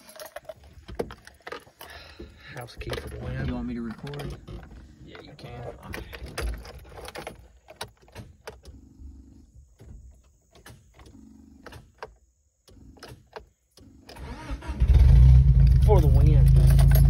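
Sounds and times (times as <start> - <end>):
key jiggling in ignition lock: 0.0 - 8.7, 16.4 - 17.0.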